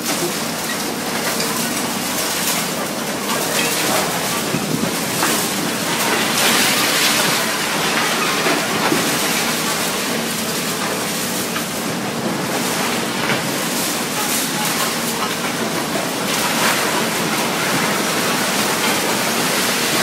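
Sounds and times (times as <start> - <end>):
excavator engine running: 0.0 - 20.0.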